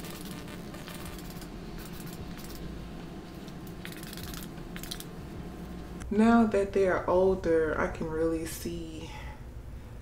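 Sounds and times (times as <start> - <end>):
spray bottle spritzing: 0.0 - 2.6, 3.8 - 5.0
low room hum: 0.0 - 10.0.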